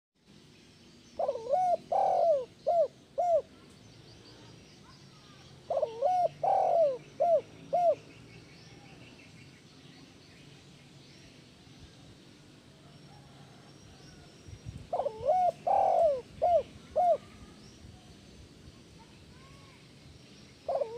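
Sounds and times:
faint high bird chirps: 0.6 - 12.1
dove cooing: 1.2 - 3.6, 5.7 - 8.1, 14.9 - 17.4, 20.7 - 20.9.

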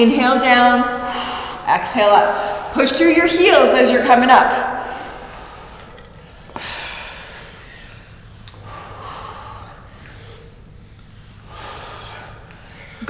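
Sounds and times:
people breathing hard: 0.9 - 2.8, 4.6 - 13.0.

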